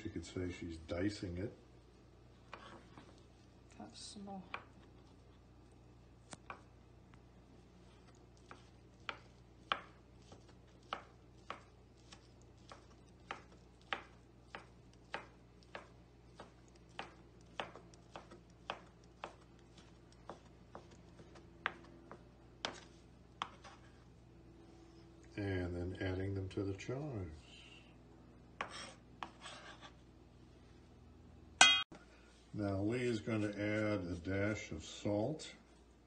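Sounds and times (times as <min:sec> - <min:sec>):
knife chopping on wooden board: 0:08.4 - 0:23.8.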